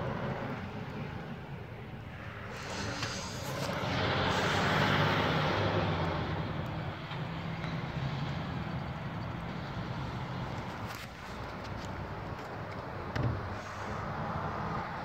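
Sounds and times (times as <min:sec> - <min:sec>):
vehicle passing by: 0:02.5 - 0:12.2.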